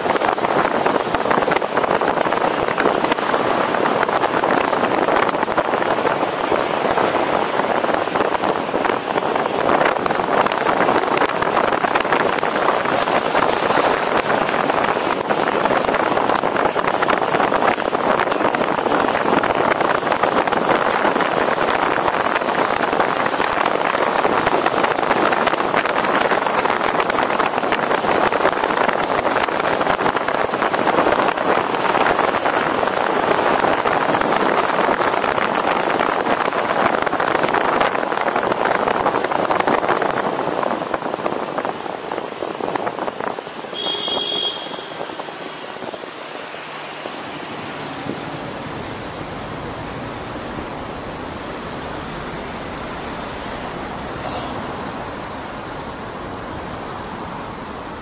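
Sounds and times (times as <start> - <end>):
tyre and road noise: 0.0 - 58.0
wind rushing over microphone: 0.0 - 58.0
high squeak: 5.8 - 6.5.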